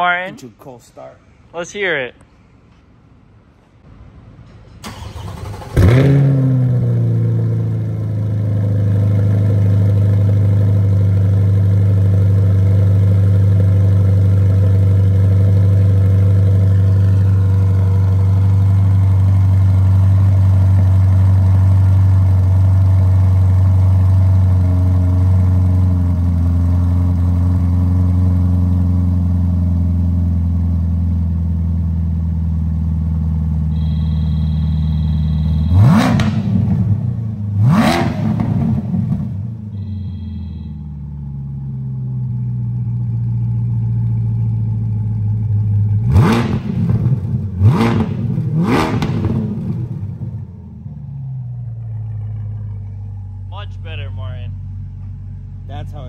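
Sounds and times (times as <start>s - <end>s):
engine revving: 4.9s - 13.6s, 33.7s - 39.6s, 45.9s - 50.5s
car engine idling: 6.6s - 56.0s.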